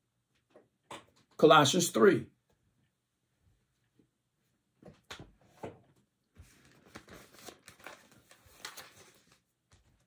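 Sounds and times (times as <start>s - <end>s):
pages turning rustles: 6.4s - 10.0s.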